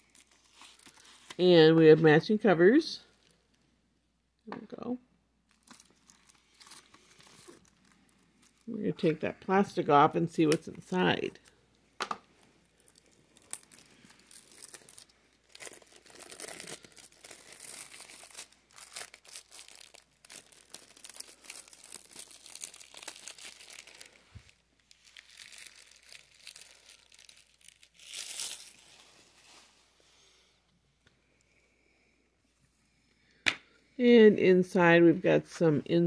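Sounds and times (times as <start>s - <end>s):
plastic shrink-wrap tearing and crinkling: 0.0s - 1.4s, 5.5s - 8.7s, 12.7s - 30.0s.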